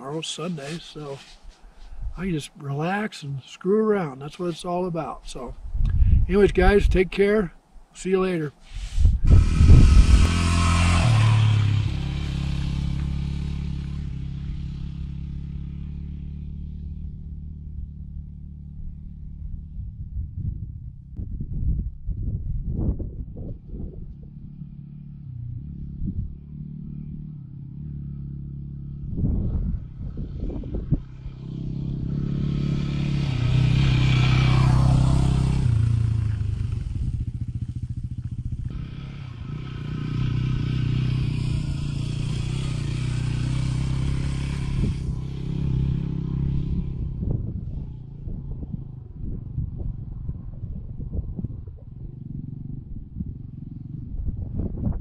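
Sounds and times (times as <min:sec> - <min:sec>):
motorcycle engine running: 0:09.0 - 0:21.8, 0:22.5 - 0:55.0.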